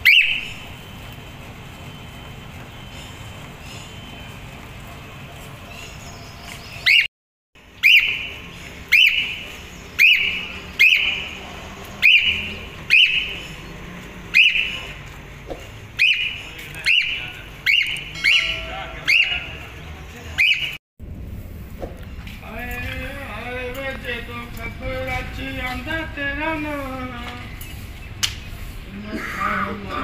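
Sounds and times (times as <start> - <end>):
cockatiel whistling calls: 7.8 - 8.3, 8.9 - 9.4, 10.0 - 11.2.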